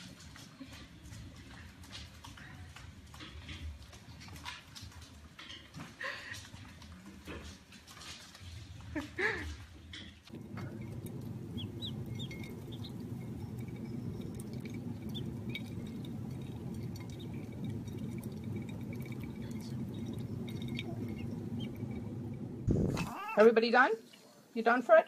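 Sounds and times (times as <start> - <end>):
steady low hum: 10.3 - 23.1
ducklings peeping: 10.4 - 22.4.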